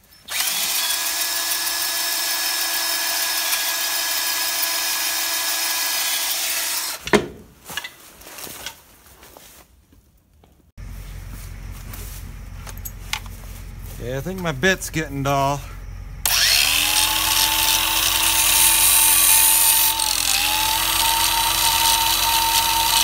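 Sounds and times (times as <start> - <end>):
cordless drill boring into steel: 0.2 - 7.0, 16.2 - 23.0.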